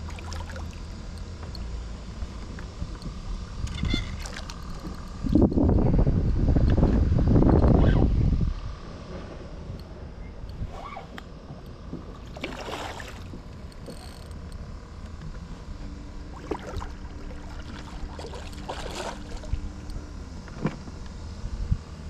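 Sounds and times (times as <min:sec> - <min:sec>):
wind rumble on microphone: 0:02.2 - 0:11.2, 0:16.6 - 0:22.0
fish splashing in water: 0:12.2 - 0:13.3, 0:16.3 - 0:19.5.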